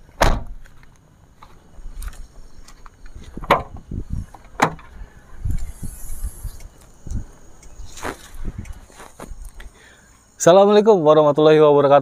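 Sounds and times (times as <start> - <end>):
car doors clunking shut: 0.1 - 0.6, 3.2 - 5.0
low thuds of tailgate: 0.2 - 0.6, 3.3 - 5.0.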